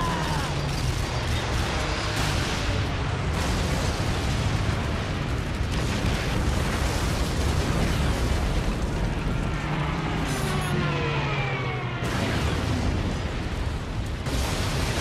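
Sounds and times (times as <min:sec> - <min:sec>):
explosions and blast rumble: 0:00.0 - 0:15.0
warplane engine diving by: 0:08.6 - 0:13.6.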